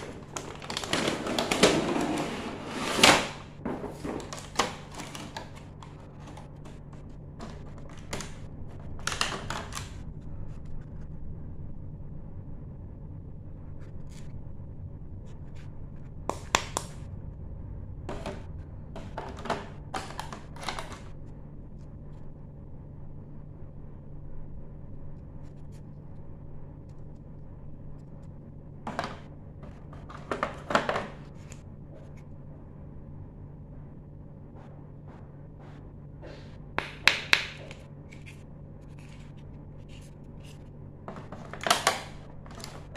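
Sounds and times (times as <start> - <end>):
plastic blister crackling and clicking: 0.0 - 1.9, 4.0 - 10.0
steady low hum: 0.0 - 42.9.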